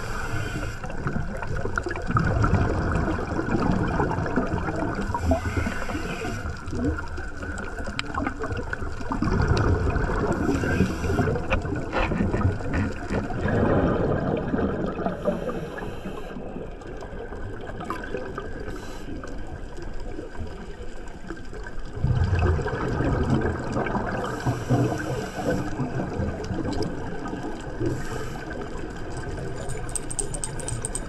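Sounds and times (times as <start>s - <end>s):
regulator inhale hiss: 0.0s - 0.9s, 5.0s - 6.6s, 10.4s - 11.5s, 15.2s - 16.4s, 18.7s - 19.3s, 24.4s - 25.8s, 27.8s - 28.8s
exhaled bubbles gurgling: 0.0s - 31.0s.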